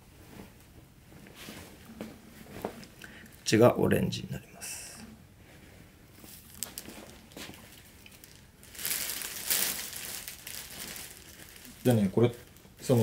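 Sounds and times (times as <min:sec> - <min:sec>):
fabric rustling: 0:05.4 - 0:13.0.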